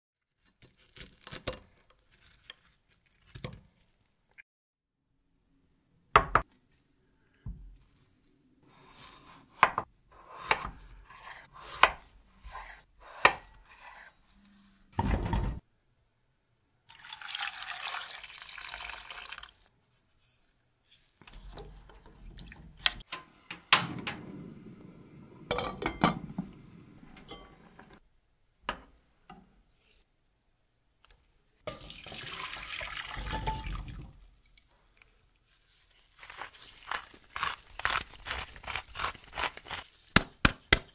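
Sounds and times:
water pouring into a pot: 16.9s - 19.7s, 31.7s - 36.2s
water pouring into metal colander: 16.9s - 19.7s, 31.7s - 34.7s.

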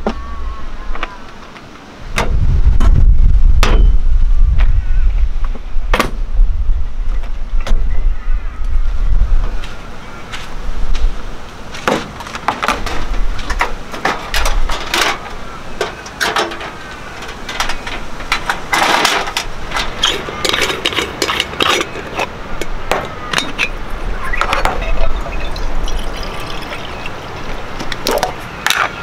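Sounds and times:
water pouring into pot: 24.9s - 27.6s.

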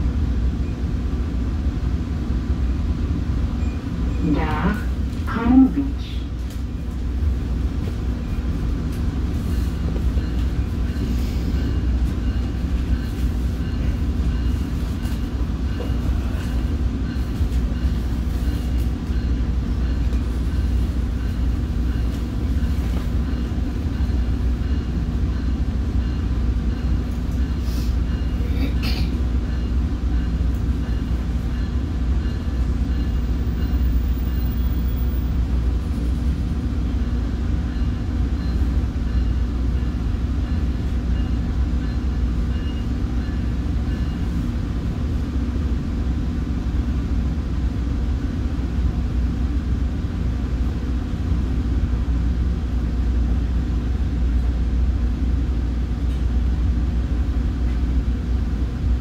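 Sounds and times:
train wheels rumbling on rails: 0.0s - 59.0s.

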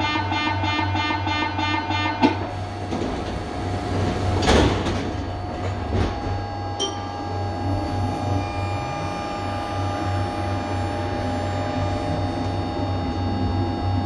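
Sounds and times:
pulsing warning tone: 0.0s - 3.0s, 5.2s - 14.0s
low electrical hum of train: 0.0s - 14.0s
sliding doors shutting with thump: 2.3s - 6.4s.

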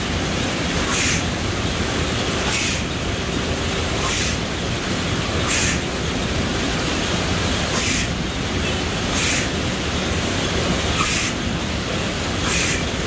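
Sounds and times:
pneumatic air hiss: 0.8s - 1.3s, 2.5s - 2.9s, 4.0s - 4.4s, 5.4s - 5.9s, 7.7s - 8.2s, 9.1s - 9.6s, 11.0s - 11.4s, 12.4s - 12.9s.

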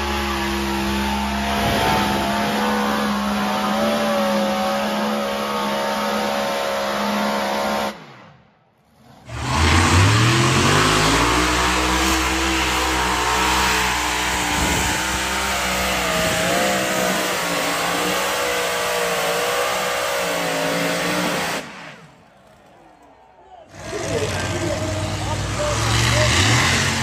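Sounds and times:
tractor engine revving at full throttle: 0.0s - 8.2s, 9.2s - 22.1s, 23.7s - 27.0s.

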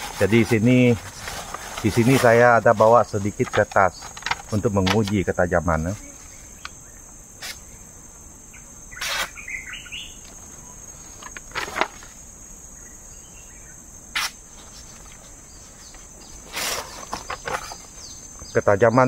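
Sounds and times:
insects droning: 0.0s - 19.0s
bird chirping: 8.5s - 10.8s, 17.2s - 18.7s.

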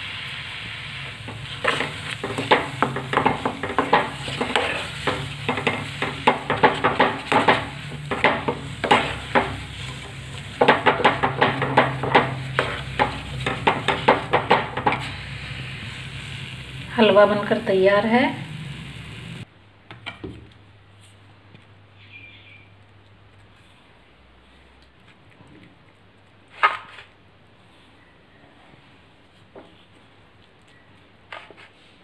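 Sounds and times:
food sizzling: 0.0s - 19.5s
spoon scraping a steel pan: 1.3s - 15.3s.

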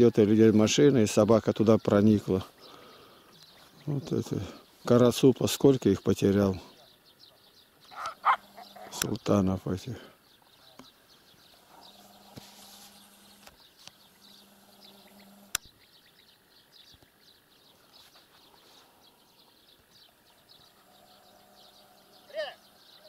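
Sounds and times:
birds chirping: 0.0s - 23.0s
faint low hum: 0.1s - 23.0s
sharp click: 15.5s - 15.7s.

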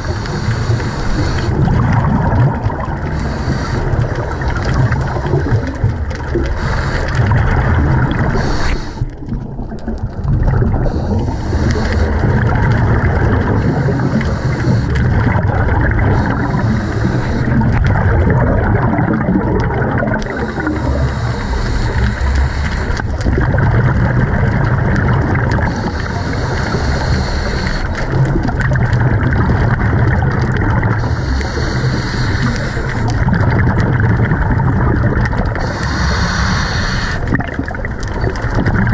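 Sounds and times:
regulator hissing inhale: 0.0s - 1.6s, 3.0s - 4.7s, 6.4s - 7.3s, 8.2s - 9.2s, 10.8s - 12.4s, 13.5s - 15.3s, 16.1s - 17.8s, 20.3s - 23.2s, 25.6s - 28.2s, 31.0s - 33.3s, 35.6s - 37.3s
bubbling exhale: 0.0s - 38.9s.

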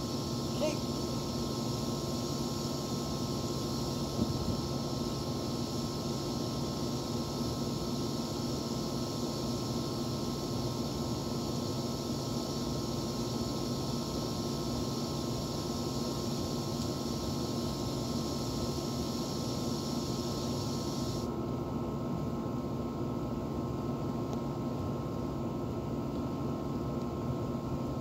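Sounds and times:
high hiss: 0.0s - 21.3s
air conditioner unit humming: 0.0s - 28.0s.

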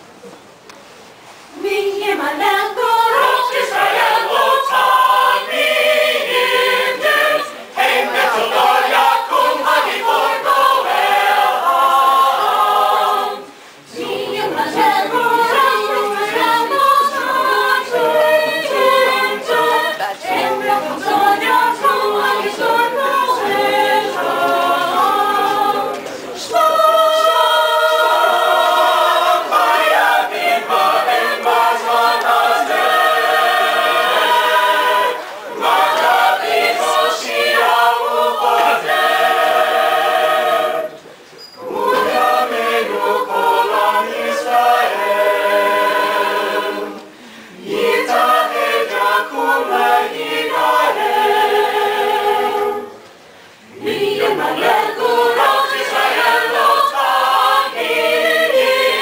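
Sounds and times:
a cappella choir singing: 1.4s - 59.0s.

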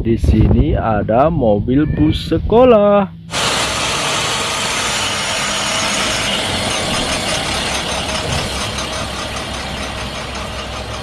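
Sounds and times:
bus engine driving off: 3.1s - 11.0s.

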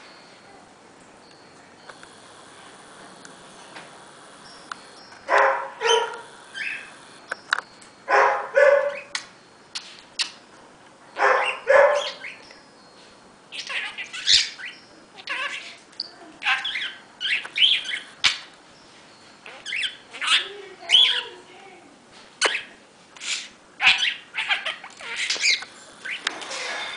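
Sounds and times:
budgerigar chattering: 19.4s - 21.3s, 22.4s - 26.2s.

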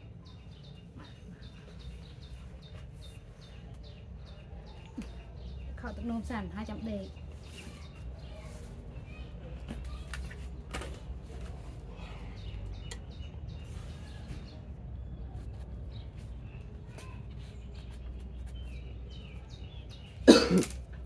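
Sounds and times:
small birds chirping: 0.0s - 21.0s.

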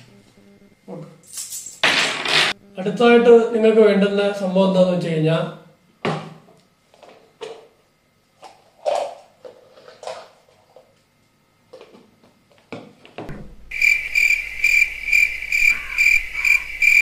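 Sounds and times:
cricket chirping: 13.6s - 17.0s.

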